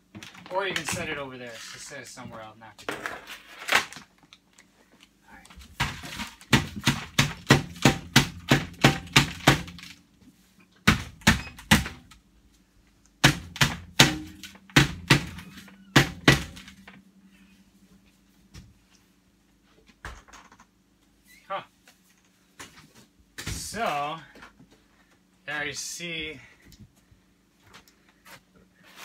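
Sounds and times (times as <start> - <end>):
stovepipe banging thunks: 13.2 - 17.0.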